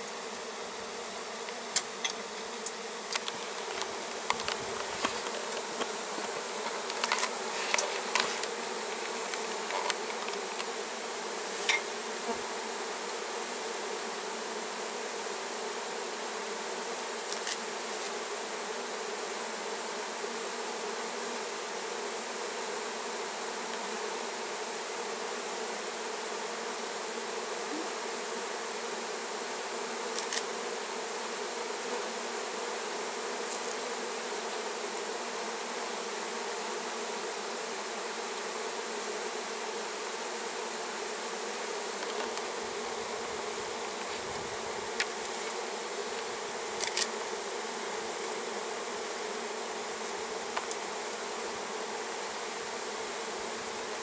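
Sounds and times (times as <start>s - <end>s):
honeybees buzzing drone: 0.0s - 54.0s.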